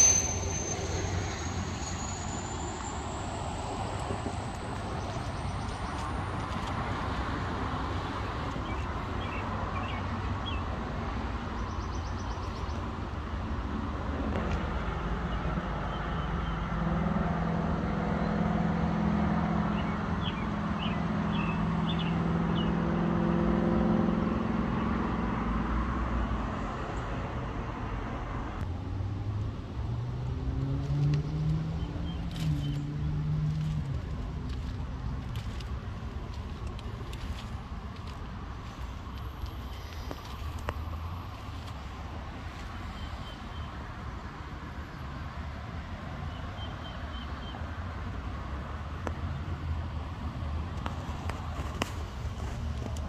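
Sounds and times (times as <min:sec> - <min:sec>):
engine rising in pitch: 0:00.0 - 0:06.4
rumble of motor vehicles: 0:00.0 - 0:53.0.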